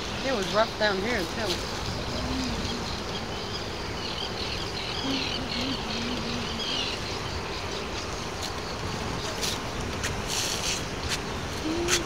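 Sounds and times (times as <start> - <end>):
wind: 0.0 - 12.0
low wavering hum: 1.6 - 8.1.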